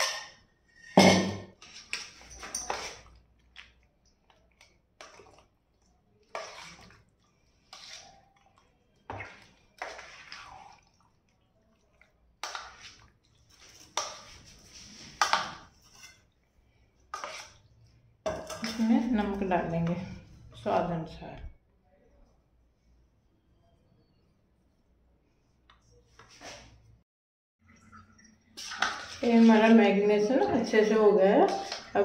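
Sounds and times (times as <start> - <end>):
spoon stirring in metal bowl: 0.0 - 21.2, 27.8 - 32.0.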